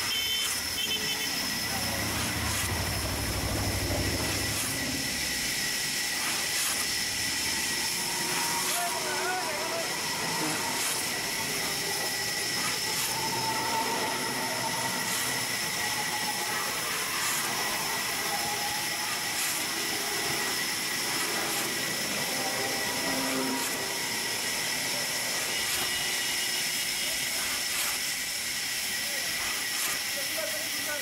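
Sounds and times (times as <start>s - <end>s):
handsaw rasping through log: 6.1s - 9.1s, 9.9s - 13.2s, 27.2s - 28.1s.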